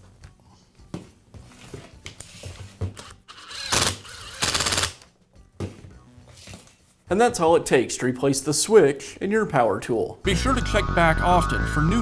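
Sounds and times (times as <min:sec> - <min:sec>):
impact driver driving screws: 0:03.0 - 0:05.0.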